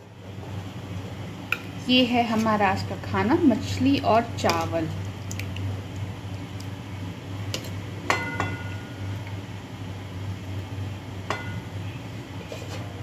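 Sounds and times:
steady low hum: 0.0 - 13.0
steel ladle clinking on cookware: 11.3 - 11.7.

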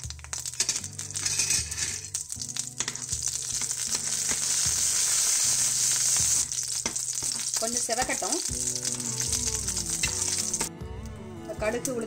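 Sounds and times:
spices sizzling in hot oil: 0.0 - 10.7
spoon stirring and clicking on pan: 6.5 - 7.6.

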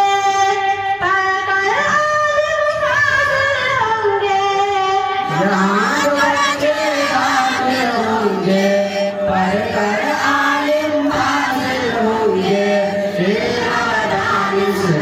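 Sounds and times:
lead singer over microphone: 0.0 - 15.0
students singing in chorus: 5.2 - 15.0.

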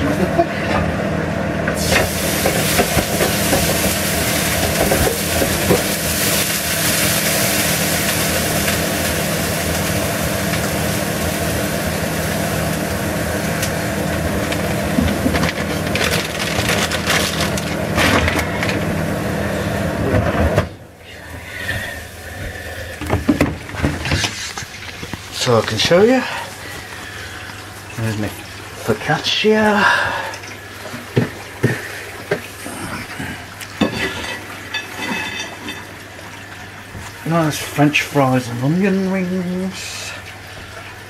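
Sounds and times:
tap water sizzling on hot pan: 1.7 - 16.0, 23.0 - 26.0, 30.8 - 32.5.

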